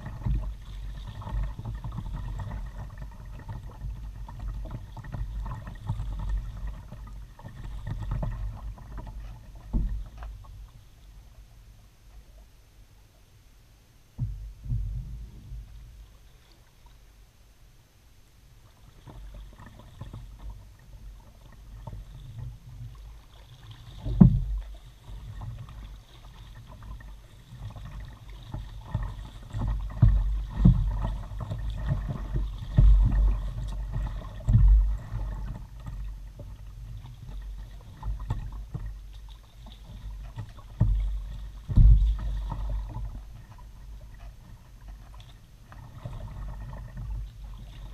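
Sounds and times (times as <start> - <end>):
water sloshing against hull: 0.0 - 47.9
muffled knocks on kayak hull: 9.6 - 10.4, 14.2 - 15.7, 24.0 - 24.7, 28.5 - 35.4, 40.6 - 43.6.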